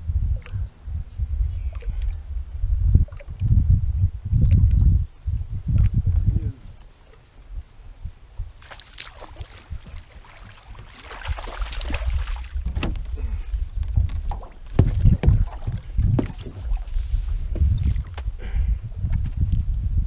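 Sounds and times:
wind rumble on microphone: 0.0s - 20.0s
knocks against metal boat: 12.6s - 13.1s, 14.7s - 15.4s.

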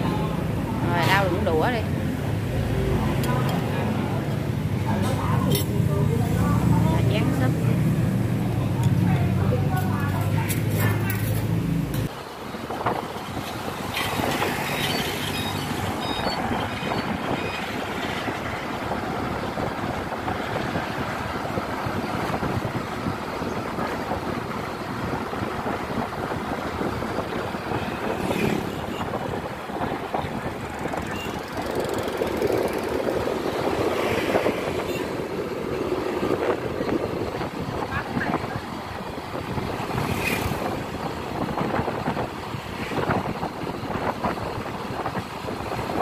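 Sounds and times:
tyre noise on road: 0.0s - 46.0s
wind noise: 0.0s - 46.0s
scooter engine running: 30.8s - 33.4s.

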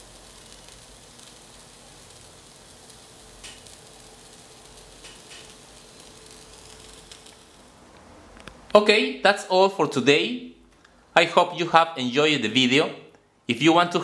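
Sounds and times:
steam hissing from nozzles: 0.0s - 7.7s.

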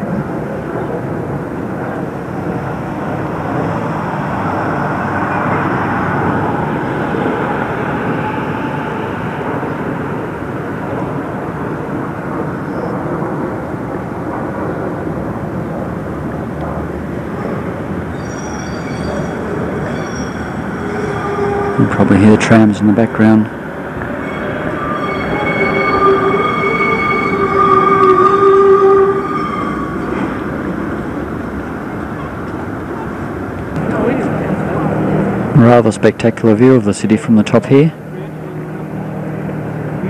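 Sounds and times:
rumble of passing vehicles: 0.0s - 40.0s
faint high squeals: 4.5s - 10.6s, 17.4s - 23.4s, 24.1s - 30.5s.

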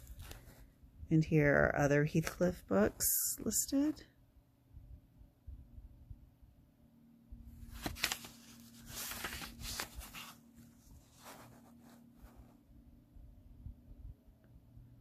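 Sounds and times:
book pages rustling: 0.0s - 0.7s, 7.6s - 12.6s.

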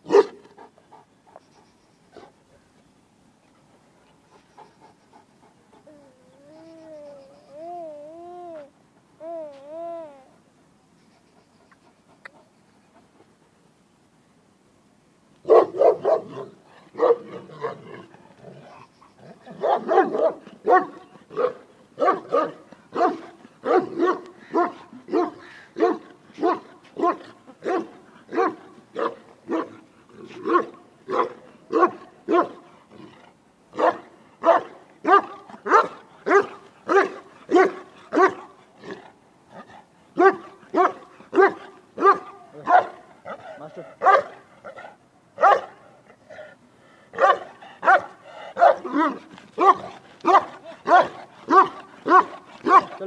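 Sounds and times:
large dog barking: 0.0s - 0.5s, 15.4s - 46.4s, 47.1s - 53.0s.

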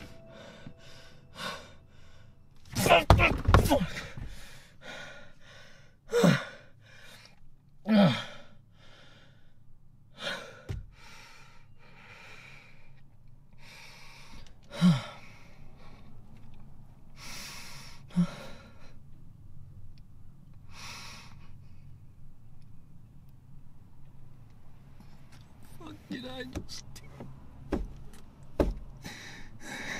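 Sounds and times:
young man crying: 2.7s - 4.2s.

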